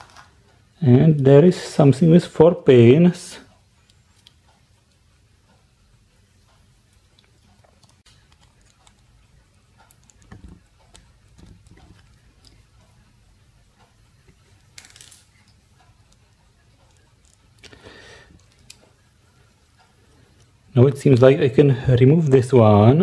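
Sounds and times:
plastic parts clicking and tapping: 0:09.8 - 0:12.6.

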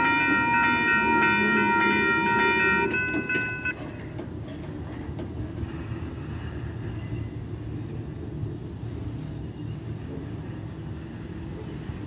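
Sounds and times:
freight train rolling: 0:00.0 - 0:12.0
train wheels squealing: 0:00.0 - 0:12.0.

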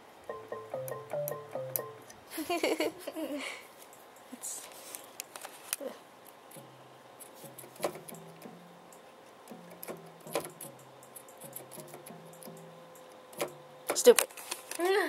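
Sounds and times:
electronic keyboard notes: 0:00.0 - 0:02.1, 0:07.4 - 0:13.8
keys clicking and tapping: 0:00.3 - 0:02.2, 0:06.5 - 0:14.3.

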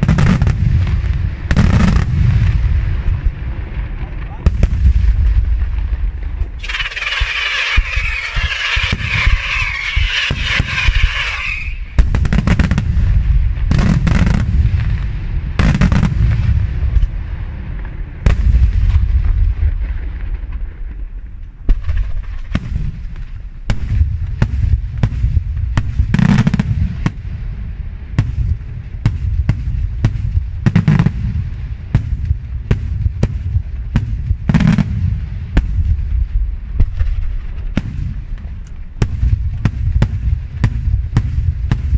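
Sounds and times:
fireworks bangs: 0:00.0 - 0:41.9
low rumble: 0:00.0 - 0:41.9
dense hiss: 0:06.4 - 0:12.9.

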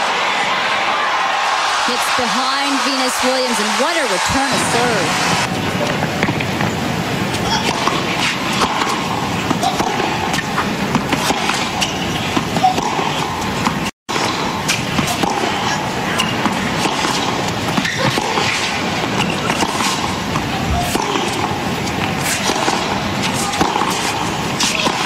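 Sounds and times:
crowd murmur: 0:00.0 - 0:10.9
tennis ball hits: 0:07.4 - 0:25.0.

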